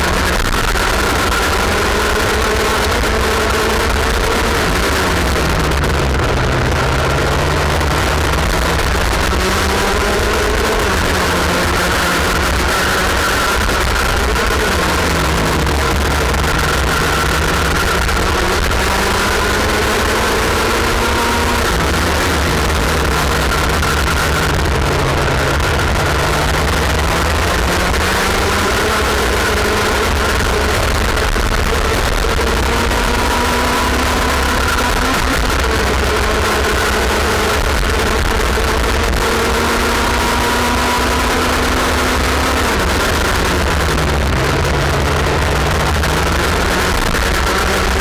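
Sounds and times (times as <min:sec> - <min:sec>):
kart engine running hard: 0:00.0 - 0:48.0.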